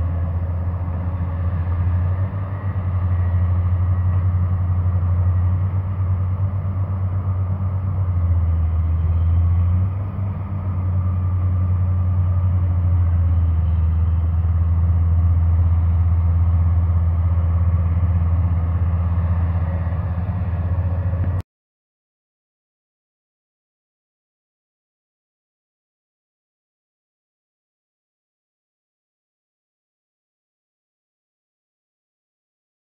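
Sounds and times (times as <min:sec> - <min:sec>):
diesel excavator engine rumble: 0:00.0 - 0:21.4.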